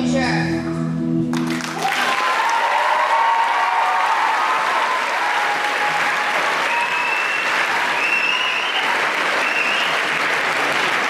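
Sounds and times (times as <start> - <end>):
audience applauding: 1.3 - 11.0
cheers and whoops: 1.5 - 10.2.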